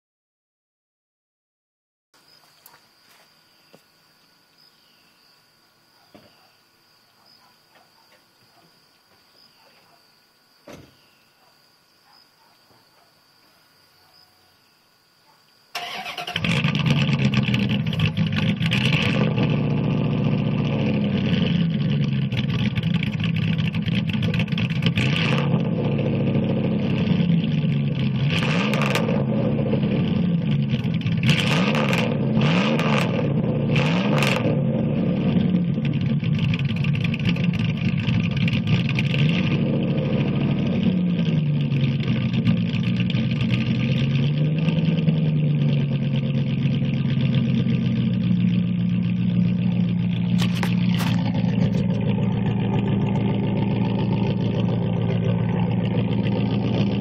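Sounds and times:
truck engine revving: 15.8s - 57.0s.

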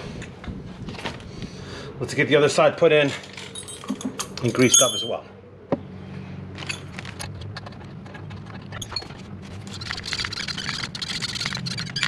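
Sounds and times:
grease gun clicking and squishing: 7.2s - 12.0s.

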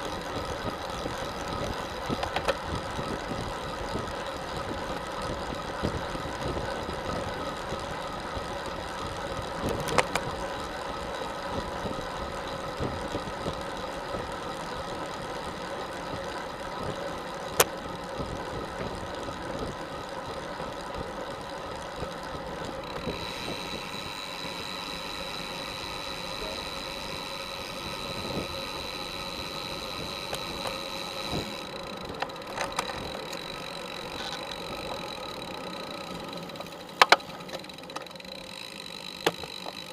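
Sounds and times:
bicycle tyres and drivetrain hum: 0.0s - 39.9s
thin high whine: 22.9s - 37.4s.

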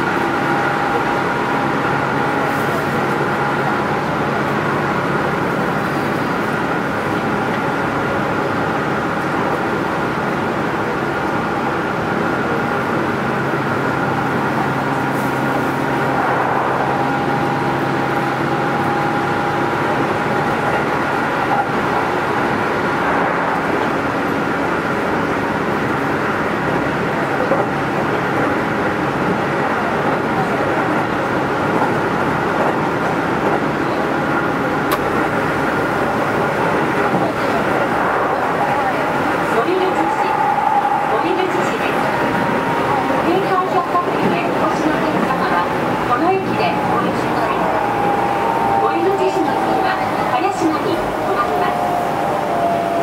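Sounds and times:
train wheels rumbling on rail: 0.0s - 53.0s
train motor hum: 31.4s - 53.0s.

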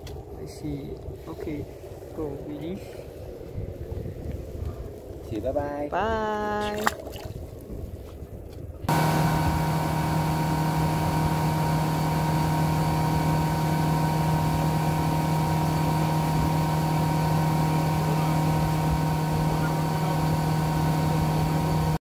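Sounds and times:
boat engine running: 8.8s - 22.0s
rush of boat wake: 8.8s - 22.0s.

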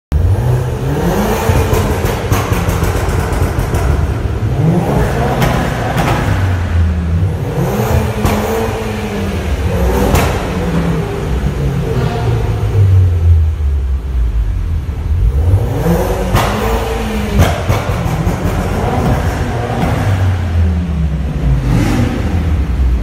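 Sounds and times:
car engine revving: 0.1s - 23.0s.

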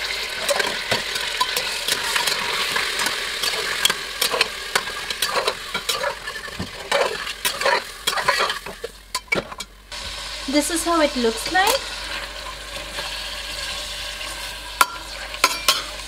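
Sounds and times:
meat sizzling in hot oil: 0.0s - 16.0s
wooden spatula scraping pot: 0.3s - 9.7s.

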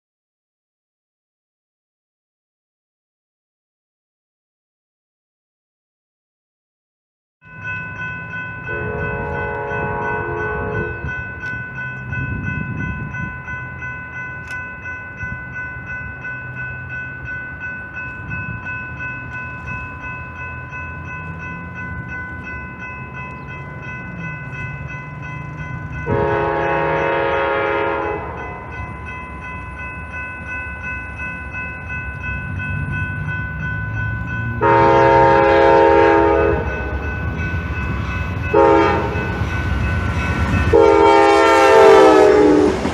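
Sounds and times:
high-pitched ringing: 7.5s - 42.6s
locomotive engine rumbling: 7.6s - 42.9s
train horn blasts: 8.7s - 11.2s, 26.0s - 28.5s, 34.6s - 37.0s, 38.5s - 39.3s, 40.7s - 42.9s.

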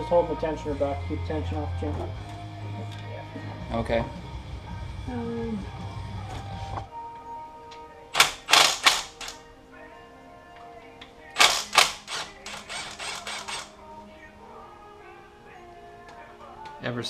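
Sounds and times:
background music: 0.0s - 17.0s
power driver bursts: 8.2s - 9.4s, 11.4s - 13.7s.

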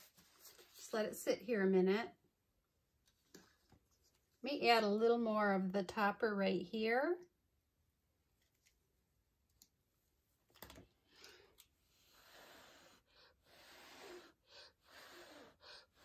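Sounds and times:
soft puffs of breath: 11.1s - 16.0s.

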